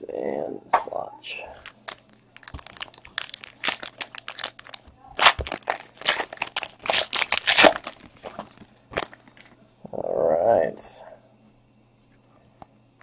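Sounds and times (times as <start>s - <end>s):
foil wrapper tearing and crinkling: 1.6s - 9.5s.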